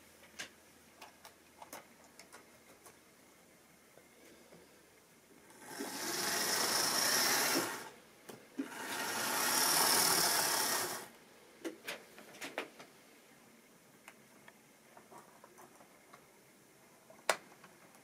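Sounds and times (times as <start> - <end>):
model train motor whirring: 5.5 - 7.9, 8.6 - 11.2
wheels rattling over rails: 5.6 - 7.9.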